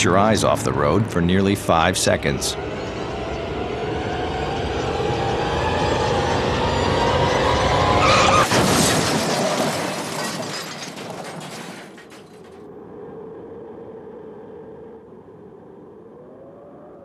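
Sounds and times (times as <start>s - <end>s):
loud car crash impact: 8.0s - 12.6s
glass shattering: 8.3s - 12.6s
debris rattling: 8.4s - 12.6s
faint steady hum: 12.6s - 17.0s.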